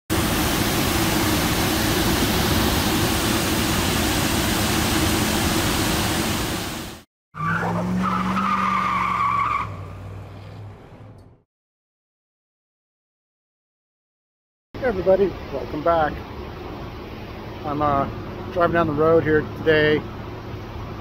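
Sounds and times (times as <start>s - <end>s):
water rushing over waterfall: 0.1s - 7.0s.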